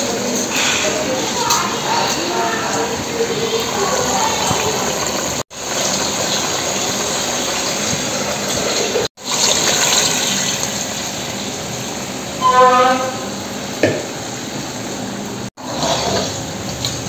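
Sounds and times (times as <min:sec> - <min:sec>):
food hissing and bubbling in pots: 0:00.0 - 0:17.0.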